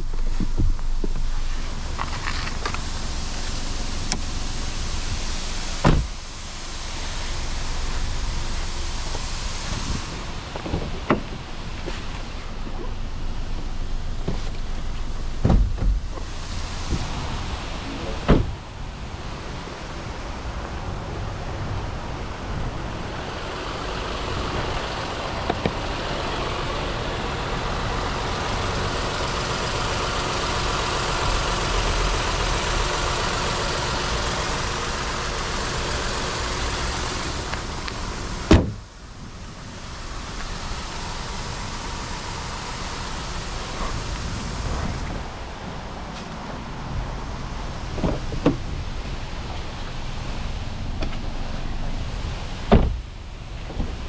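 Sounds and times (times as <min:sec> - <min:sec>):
car engine idling: 0:00.0 - 0:54.0
car bonnet slamming: 0:05.8 - 0:06.2, 0:15.4 - 0:16.3, 0:18.1 - 0:18.6, 0:38.4 - 0:38.8, 0:52.7 - 0:53.1.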